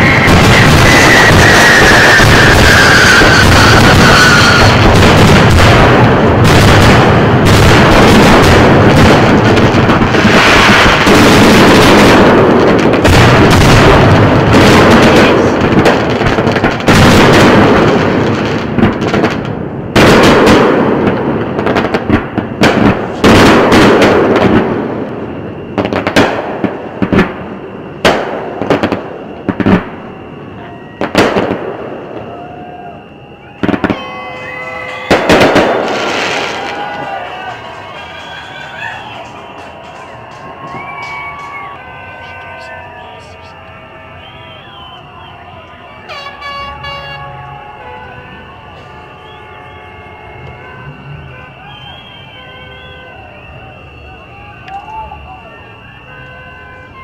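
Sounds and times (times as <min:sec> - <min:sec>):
firework shells bursting: 0:00.0 - 0:32.3, 0:33.5 - 0:44.9
fireworks crackling: 0:00.0 - 0:57.0.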